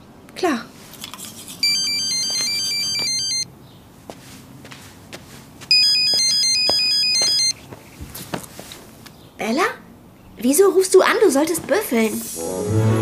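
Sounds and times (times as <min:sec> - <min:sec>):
phone ringtone beeps: 0:01.6 - 0:03.5, 0:05.7 - 0:07.6.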